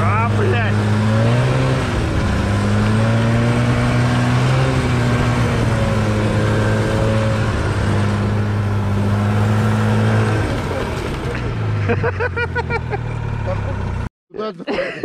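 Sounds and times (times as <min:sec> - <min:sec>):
snowmobile engine running: 0:00.0 - 0:14.1.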